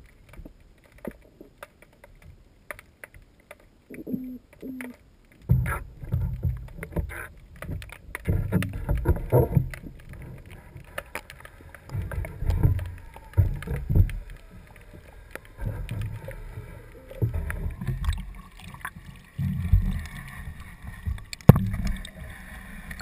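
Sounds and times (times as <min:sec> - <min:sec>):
thumps and rumbles on boat: 0:05.5 - 0:10.6.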